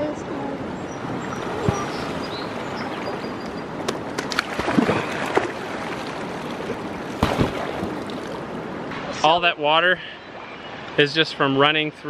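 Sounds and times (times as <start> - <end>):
river rushing: 0.0 - 9.2
water splashing from boat: 0.8 - 8.9.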